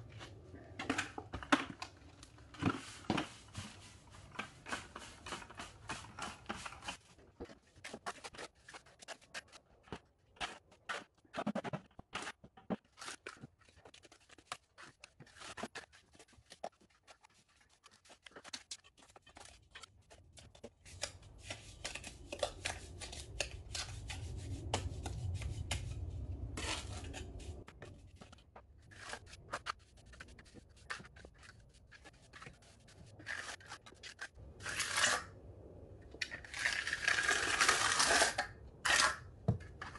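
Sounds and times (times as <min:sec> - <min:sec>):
low rumble: 0:23.5 - 0:28.3
tools scraping wet mortar: 0:28.8 - 0:35.3, 0:36.3 - 0:39.9.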